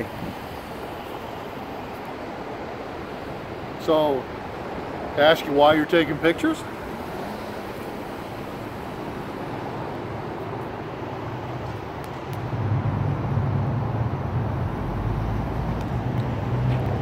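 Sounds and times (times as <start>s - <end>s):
street traffic: 0.0s - 17.0s
bus engine hum: 4.4s - 17.0s.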